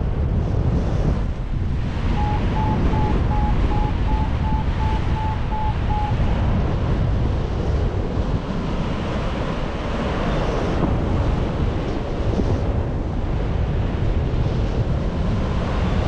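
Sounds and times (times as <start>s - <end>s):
wind rushing over microphone: 0.0s - 16.0s
variometer beeping in short pulses: 2.2s - 6.2s.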